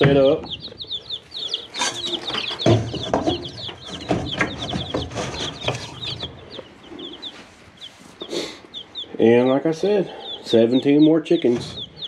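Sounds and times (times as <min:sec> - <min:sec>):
baby chicks peeping: 0:00.0 - 0:12.0
sharp knocks: 0:01.8 - 0:06.4.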